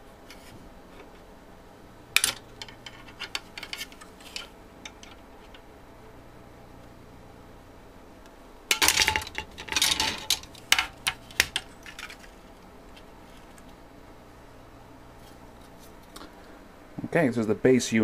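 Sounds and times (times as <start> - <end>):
plastic parts clicking and clattering: 2.2 - 5.6, 8.7 - 12.4.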